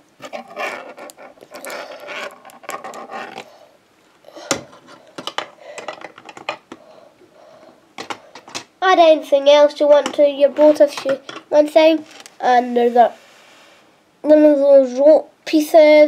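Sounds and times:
plastic pieces rustling and clattering: 4.5s - 6.8s.

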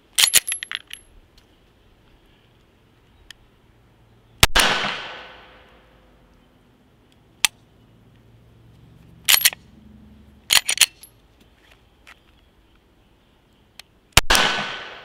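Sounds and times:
gunshot echo: 4.4s - 5.7s, 14.2s - 15.0s
pistol slide racking clacks: 10.5s - 11.1s.

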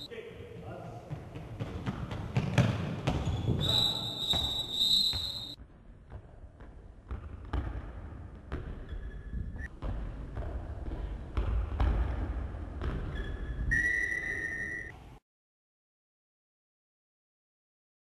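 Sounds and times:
knocks and thuds in sports hall: 0.0s - 13.7s
referee's whistle blast: 3.6s - 5.6s, 13.7s - 14.9s
faint short squeak: 13.2s - 14.9s.

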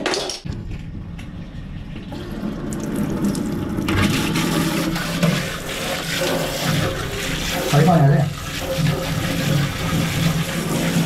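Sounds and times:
shower spray into plastic cistern: 3.8s - 11.0s.

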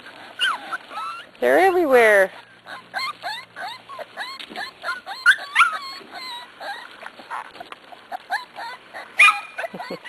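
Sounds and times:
puppies whimpering and yipping: 0.0s - 10.0s.

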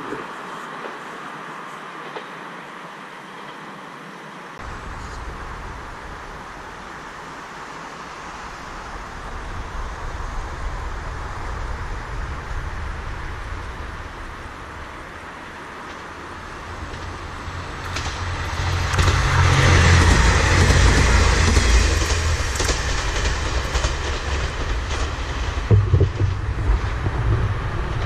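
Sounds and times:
distant vehicles: 0.0s - 28.0s
deep low rumble: 8.4s - 15.3s, 16.3s - 28.0s.

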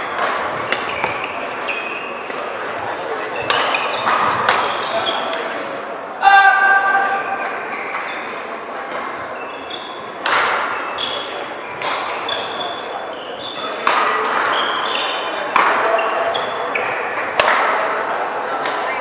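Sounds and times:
shoes squeaking on court: 0.0s - 2.6s, 3.3s - 5.5s, 7.0s - 17.2s
racket hitting shuttlecock: 0.1s - 2.8s, 3.4s - 4.9s, 10.2s - 11.2s, 11.8s - 12.6s, 13.6s - 18.0s, 18.6s - 19.0s.

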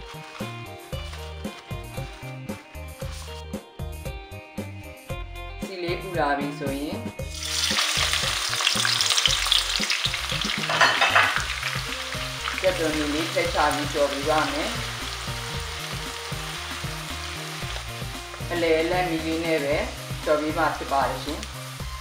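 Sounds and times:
spatula stirring: 0.0s - 3.6s
onions sizzling in hot oil: 7.2s - 22.0s.

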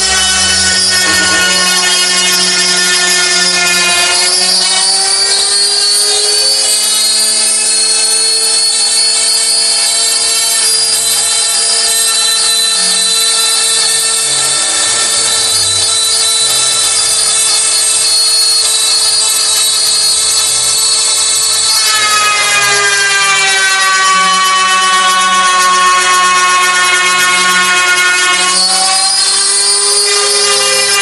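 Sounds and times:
router spindle whine: 0.0s - 31.0s.

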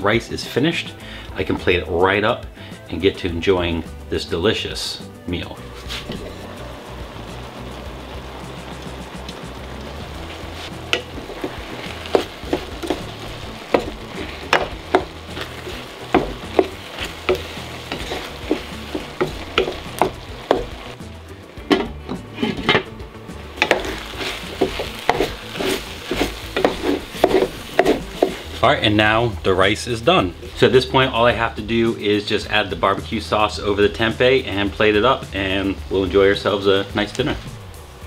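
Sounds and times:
food sizzling in a pan: 4.5s - 38.0s
utensil scraping a pan: 5.7s - 6.3s, 10.3s - 20.8s, 21.6s - 22.9s, 23.6s - 28.6s.

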